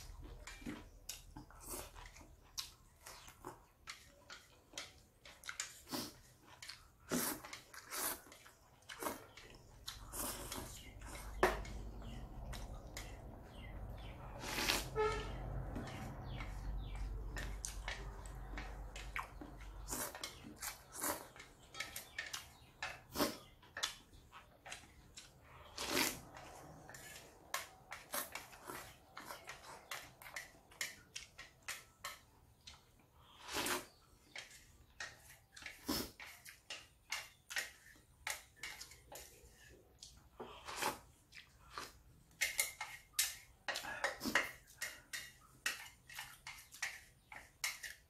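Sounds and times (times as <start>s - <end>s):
slurping and chewing noodles: 0.0s - 48.0s.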